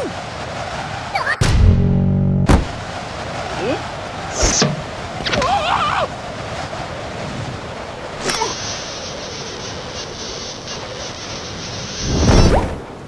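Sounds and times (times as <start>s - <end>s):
steady rushing noise: 0.0s - 13.0s
sharp swish: 4.3s - 5.4s.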